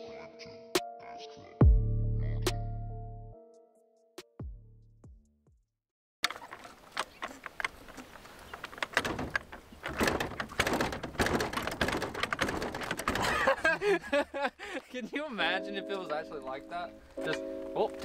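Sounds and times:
metal jack clanking and rattling: 8.6 - 13.7.

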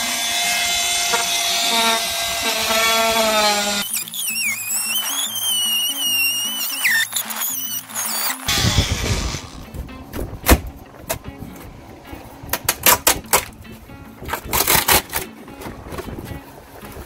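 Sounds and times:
background music low tone: 4.6 - 17.0.

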